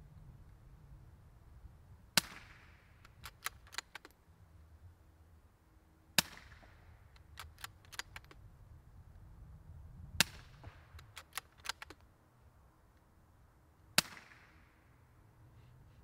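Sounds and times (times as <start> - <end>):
suppressed rifle shots: 2.2 - 4.1, 6.2 - 8.3, 14.0 - 14.7.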